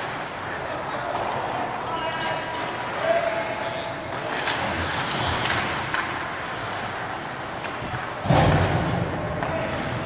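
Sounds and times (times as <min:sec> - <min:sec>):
arena noise: 0:00.0 - 0:10.0
thud against rink boards: 0:07.6 - 0:10.0.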